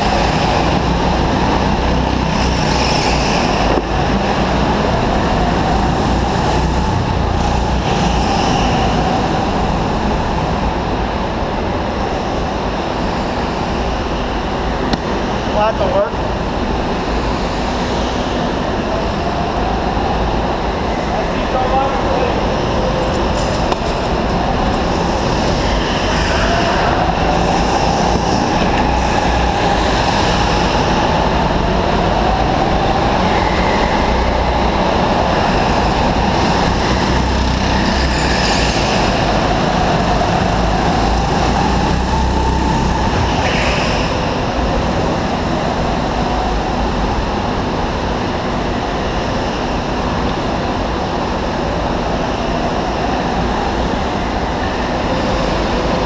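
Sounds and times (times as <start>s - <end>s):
steady rushing noise: 0.0s - 56.0s
go-kart motor whining: 23.1s - 44.7s.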